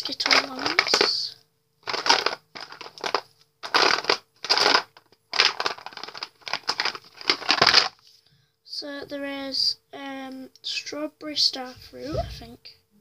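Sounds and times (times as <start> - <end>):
plastic tubes rustling and clicking: 0.0 - 8.0.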